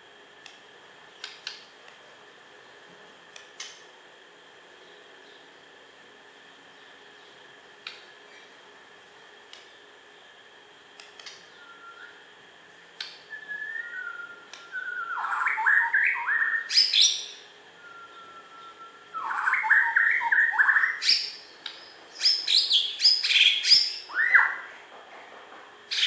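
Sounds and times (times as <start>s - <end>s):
songbird singing: 4.7s - 5.7s, 6.6s - 8.5s, 11.2s - 12.3s, 13.0s - 24.7s.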